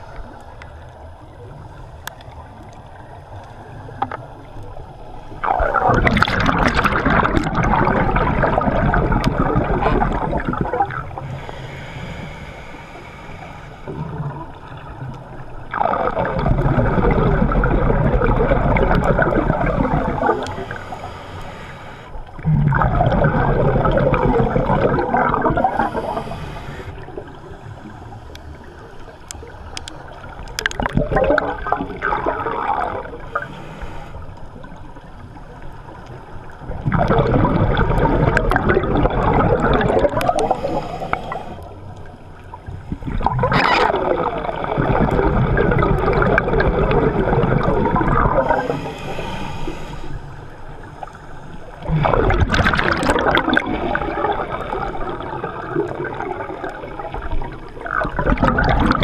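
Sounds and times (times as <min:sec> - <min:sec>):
diver's breath bubbling underwater: 0:05.4 - 0:11.5, 0:15.7 - 0:21.1, 0:22.4 - 0:27.3, 0:30.6 - 0:33.6, 0:36.7 - 0:41.6, 0:42.9 - 0:49.9, 0:51.8 - 0:59.0.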